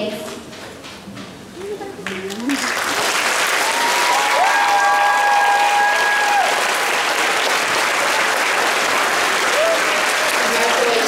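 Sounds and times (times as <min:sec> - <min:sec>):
audience clapping: 0:02.0 - 0:11.0
audience cheering: 0:02.6 - 0:11.0.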